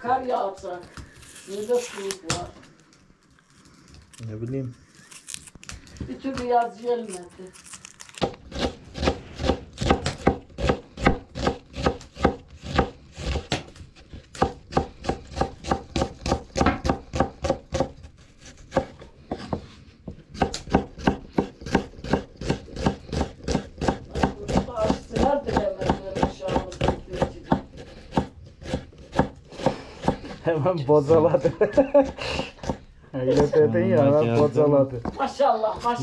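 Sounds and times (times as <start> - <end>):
knife chopping food: 8.2 - 30.4, 31.9 - 33.5.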